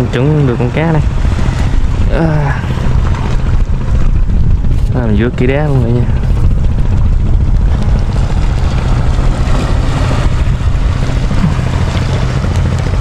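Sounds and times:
choppy sea water: 0:00.0 - 0:13.0
wind buffeting the microphone: 0:00.0 - 0:13.0.

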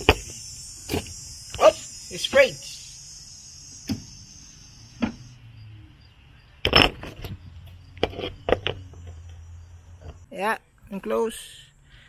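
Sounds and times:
steady high hiss: 0:00.0 - 0:05.5.

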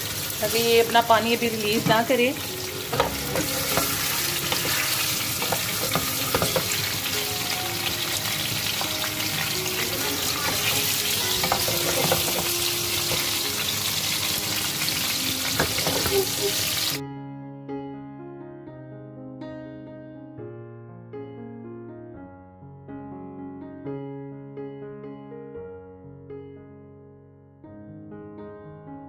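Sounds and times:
chicken sizzling in hot oil: 0:00.0 - 0:17.0
spatula scraping a pan: 0:01.6 - 0:13.8, 0:14.7 - 0:16.7.

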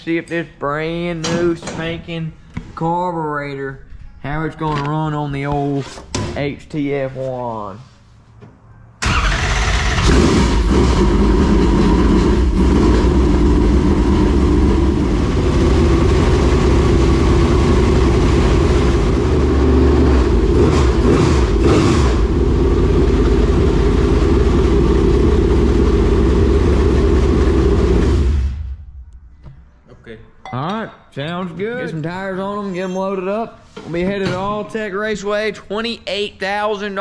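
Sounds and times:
race car engine starting and running: 0:09.0 - 0:29.2.

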